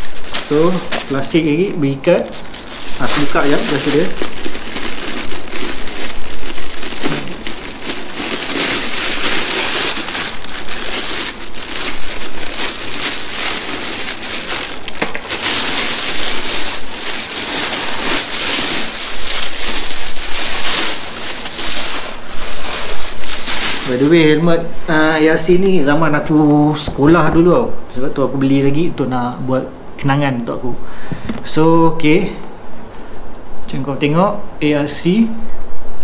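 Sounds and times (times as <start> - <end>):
plastic bag crinkling: 0.0 - 25.5.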